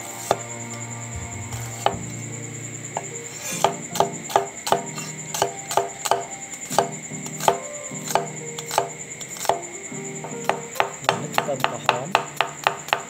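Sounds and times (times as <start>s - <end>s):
knife slicing onion on wooden board: 3.4s - 9.6s.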